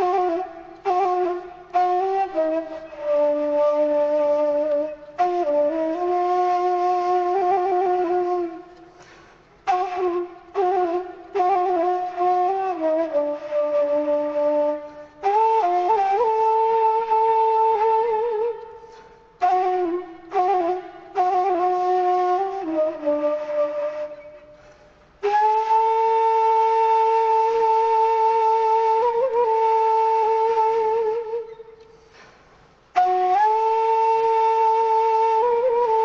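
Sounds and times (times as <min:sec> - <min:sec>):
solo flute-like melody: 0:00.0 - 0:36.0.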